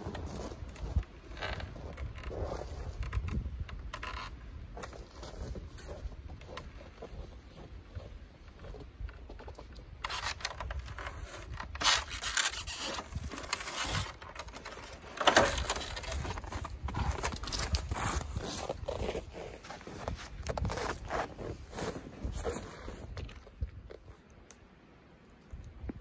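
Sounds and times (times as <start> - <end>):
rubbing and scraping: 4.0 - 23.6.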